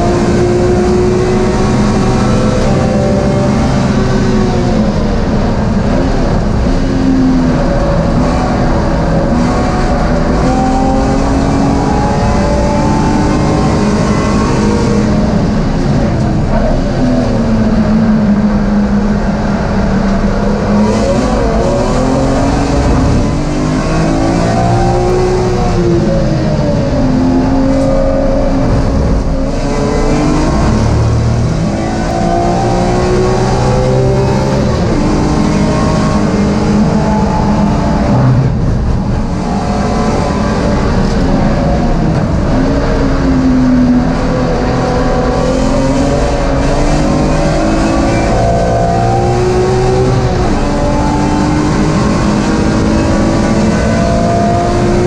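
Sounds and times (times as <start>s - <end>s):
race car engine revving: 0.0s - 55.0s
steady rush of noise: 0.0s - 55.0s.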